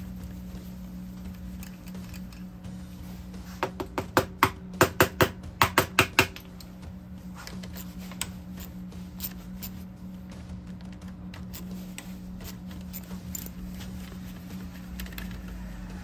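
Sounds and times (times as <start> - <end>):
steady low hum: 0.0 - 16.0
metallic clicks and taps of tools: 1.2 - 2.5.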